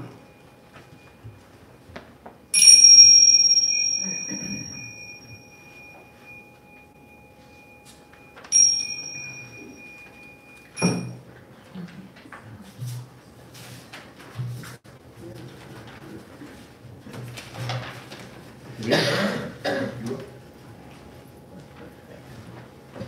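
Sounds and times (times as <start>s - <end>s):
hand bell ringing: 2.5s - 6.8s, 8.4s - 11.2s.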